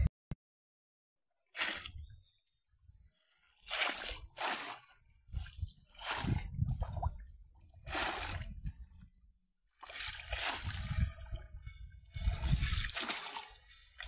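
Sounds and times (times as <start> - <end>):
splashing in shallow water: 3.6 - 8.9, 9.7 - 11.5, 12.1 - 14.0
water sloshing: 3.6 - 9.1, 9.7 - 14.0.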